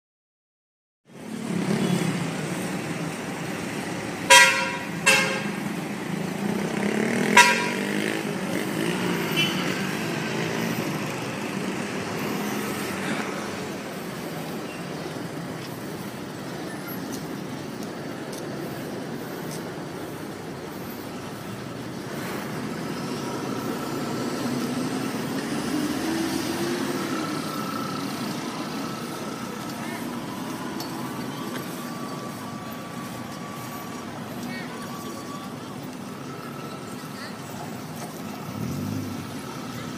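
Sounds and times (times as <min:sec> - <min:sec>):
locomotive horn blasts: 0:04.3 - 0:05.6, 0:07.2 - 0:08.2.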